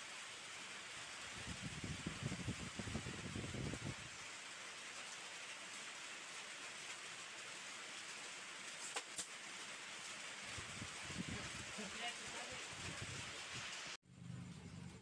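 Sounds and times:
steady hiss: 0.0s - 14.0s
low rumbling: 14.0s - 15.0s.

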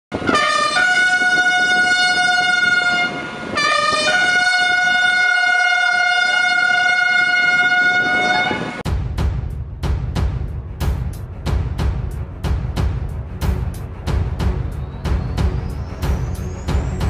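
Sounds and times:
trumpet call: 0.2s - 8.8s.

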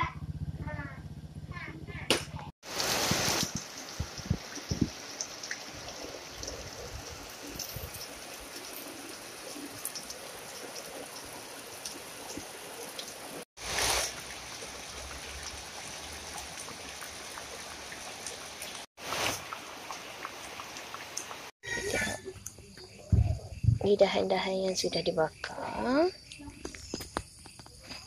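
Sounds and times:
heavy rain on foliage: 2.6s - 21.5s.

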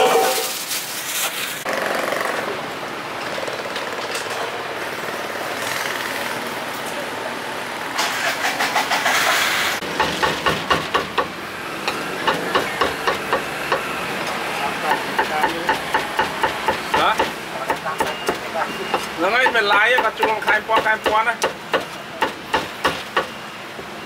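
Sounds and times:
motorbike engines running: 1.6s - 9.2s
cleaver chopping meat on wood: 9.8s - 11.3s, 12.2s - 13.9s, 14.9s - 23.3s.

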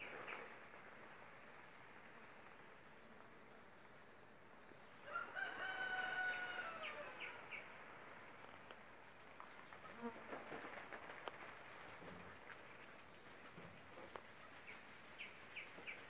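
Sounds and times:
bees buzzing faintly: 0.0s - 16.0s
rooster crowing: 5.0s - 7.2s.

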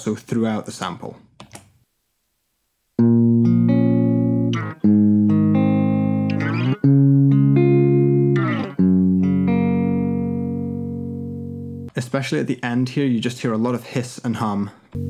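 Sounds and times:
recording static and hum: 0.0s - 3.1s
guitar chords strummed: 3.0s - 11.9s
guitar string scratch: 6.3s - 6.9s, 8.3s - 8.8s.

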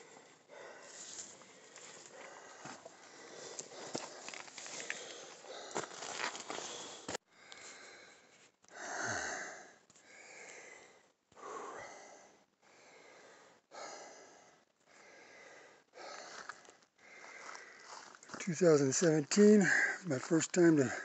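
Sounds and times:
person breathing hard: 0.0s - 18.4s, 19.6s - 20.1s.

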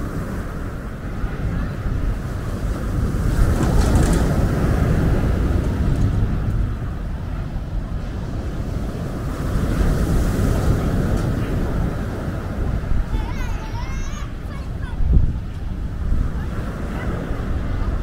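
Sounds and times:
steady low rumble: 0.0s - 16.5s
waves breaking on pebble beach: 2.1s - 6.8s.

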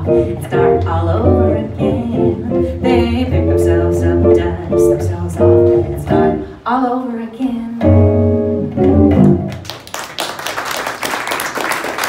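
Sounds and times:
jazz trio playing: 0.0s - 6.5s, 7.8s - 9.6s
audience applause: 9.5s - 12.0s.

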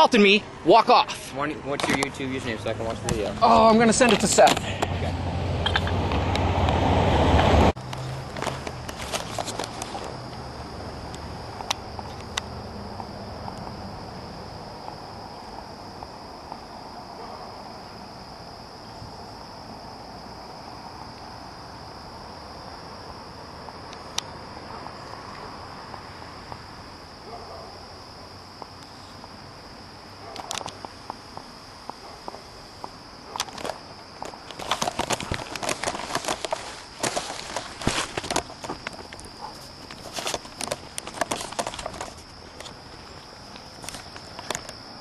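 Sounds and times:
insect chorus: 0.0s - 45.0s
rustling: 7.8s - 10.3s, 33.4s - 44.7s
footsteps: 30.4s - 44.6s.

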